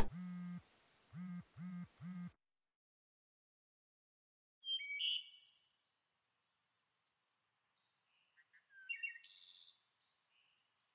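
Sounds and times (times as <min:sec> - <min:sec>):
birds chirping and trilling: 0:04.6 - 0:05.9, 0:07.8 - 0:10.9.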